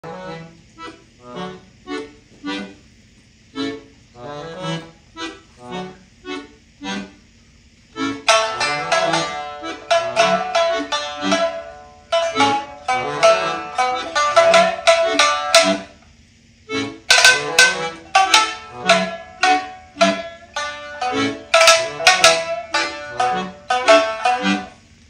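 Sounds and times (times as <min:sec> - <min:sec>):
accordion chords: 0:00.0 - 0:02.9, 0:03.5 - 0:24.9
shamisen plucked notes: 0:08.2 - 0:16.0, 0:17.1 - 0:24.8.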